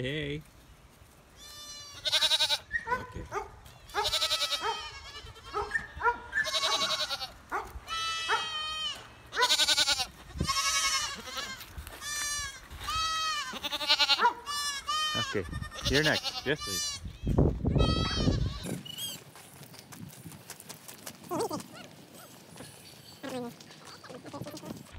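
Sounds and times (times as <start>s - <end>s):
goats bleating: 1.4s - 2.7s, 3.8s - 5.7s, 6.3s - 18.8s, 23.2s - 24.9s.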